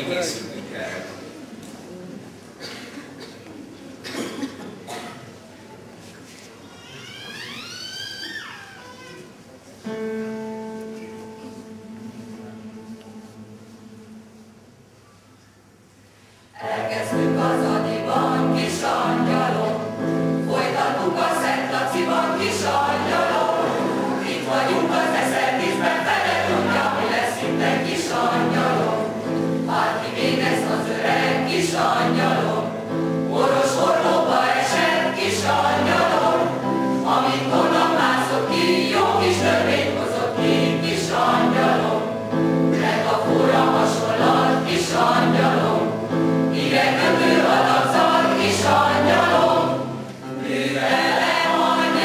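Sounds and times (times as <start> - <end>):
choir singing: 16.6 - 52.0.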